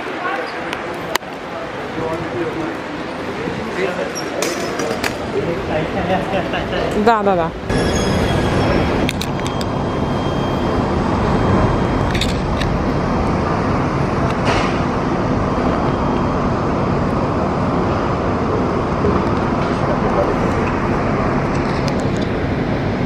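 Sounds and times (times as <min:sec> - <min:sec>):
metro platform rumble and hiss: 0:00.0 - 0:23.0
metro train: 0:00.0 - 0:23.0.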